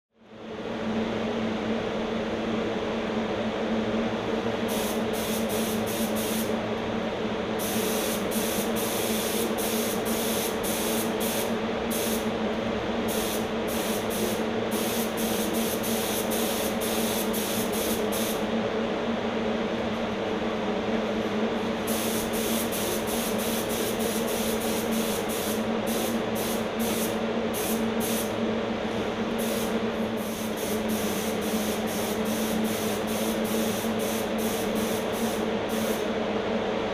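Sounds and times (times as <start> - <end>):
air compressor hum: 0.4 - 36.9
spray gun hissing bursts: 4.7 - 6.6, 7.6 - 12.3, 13.1 - 18.4, 21.8 - 36.1.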